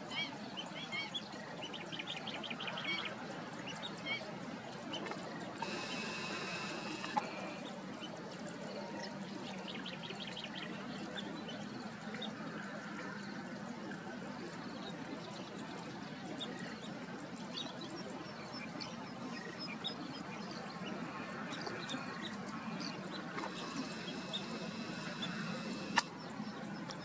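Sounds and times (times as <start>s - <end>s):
quick high ticks: 5.6s - 7.4s.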